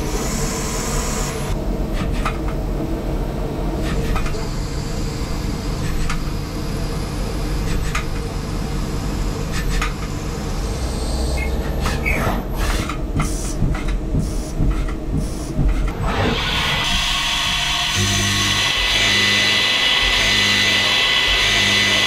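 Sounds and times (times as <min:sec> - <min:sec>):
lathe machine hum: 0:15.9 - 0:22.0.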